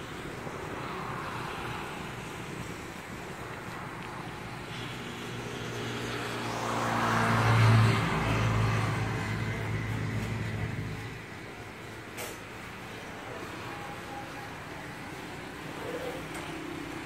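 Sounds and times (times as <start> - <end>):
vehicle passing by: 0.0 - 11.9.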